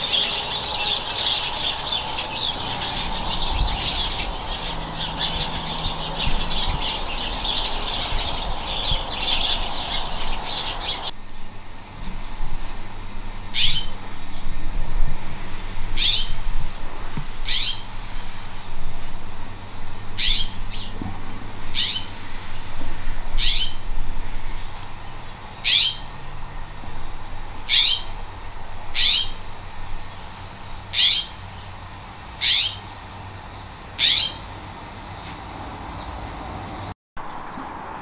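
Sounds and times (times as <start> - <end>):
jay calling: 32.4 - 32.9, 34.0 - 34.5.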